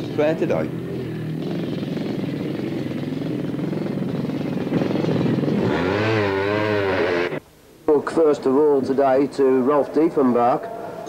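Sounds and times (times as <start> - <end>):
two-stroke motorcycle engine revving: 0.0 - 7.4.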